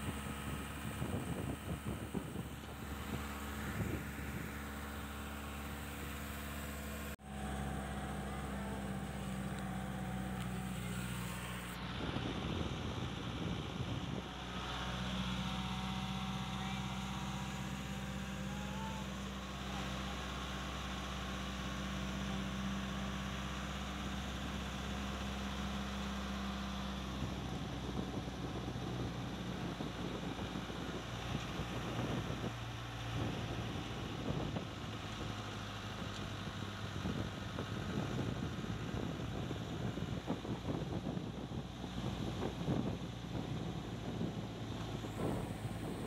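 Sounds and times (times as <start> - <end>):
wind buffeting microphone: 0.0 - 5.2, 7.7 - 14.3, 27.2 - 35.4, 36.0 - 46.0
car engine humming: 0.0 - 12.0, 44.0 - 46.0
road noise: 0.0 - 46.0.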